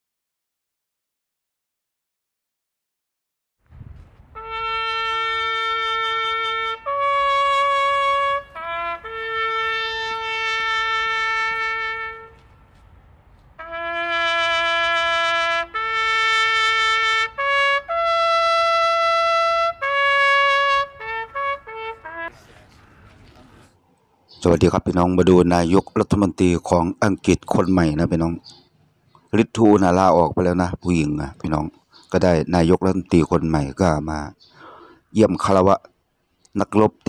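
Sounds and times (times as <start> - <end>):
solo trumpet long held notes: 4.2 - 12.6, 13.6 - 22.4.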